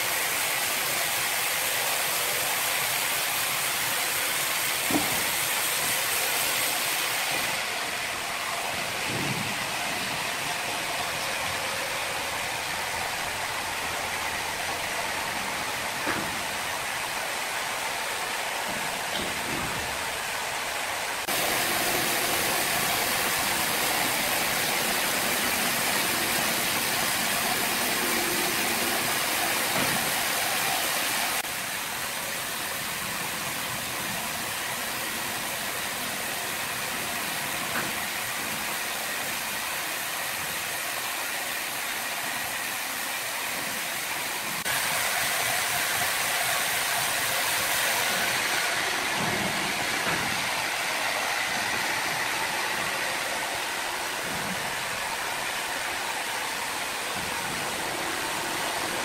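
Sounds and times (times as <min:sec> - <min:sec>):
band saw cutting timber: 0:00.0 - 0:31.6, 0:44.4 - 0:59.0.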